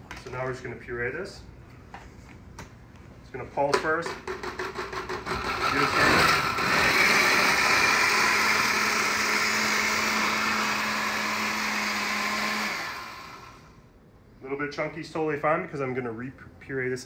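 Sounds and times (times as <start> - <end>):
blender motor humming: 5.3 - 13.7.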